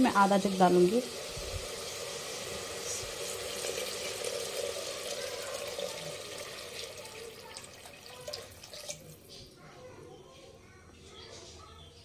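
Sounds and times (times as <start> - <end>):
water pouring and splashing: 0.0 - 9.3.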